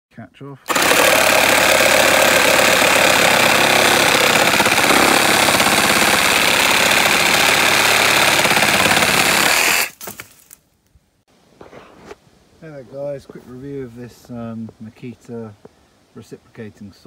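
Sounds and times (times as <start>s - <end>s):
reciprocating saw cutting timber: 0.7s - 10.0s.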